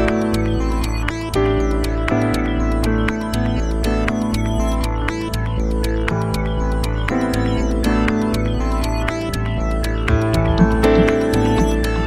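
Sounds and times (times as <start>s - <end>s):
background music with ticking beat: 0.0s - 12.0s.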